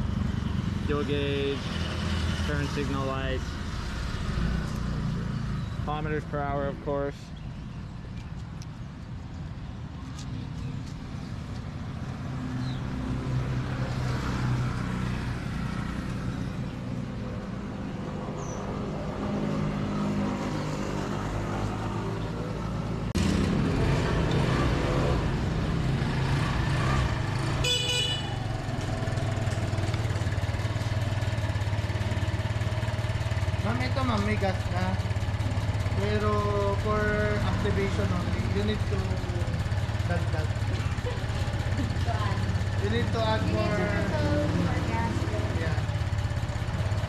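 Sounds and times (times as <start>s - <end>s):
scooter engine idling: 27.2s - 47.0s
scooter horn toot: 27.6s - 28.4s.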